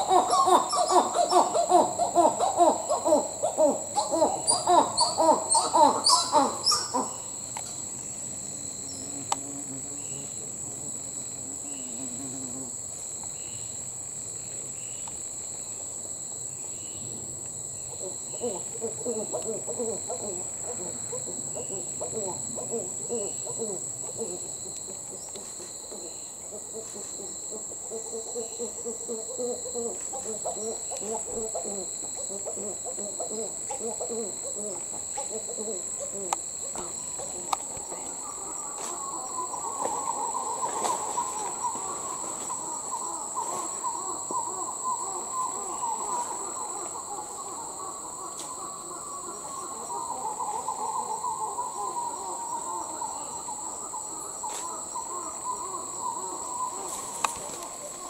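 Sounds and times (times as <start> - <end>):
monkeys hooting calls: 0.0 - 7.2
high insect drone: 0.0 - 58.0.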